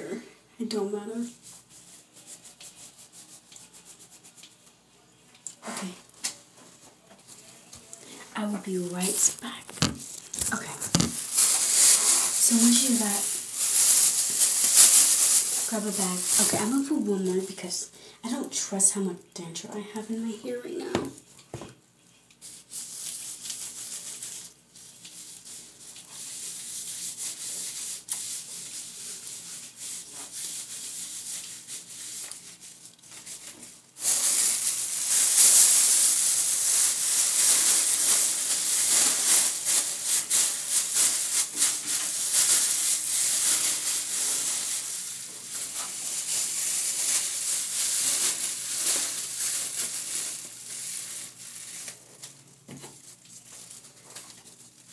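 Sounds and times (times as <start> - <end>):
soft rubbing and rustling: 1.3 - 17.0
plastic bag crinkling: 6.7 - 17.3, 22.4 - 54.9.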